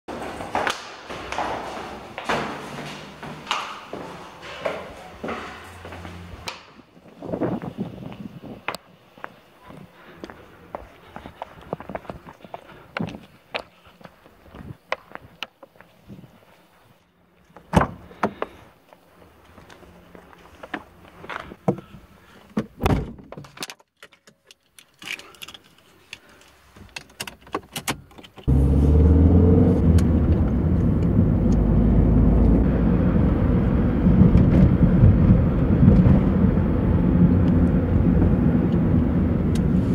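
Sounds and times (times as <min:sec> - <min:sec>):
car engine running: 0:28.5 - 0:39.9.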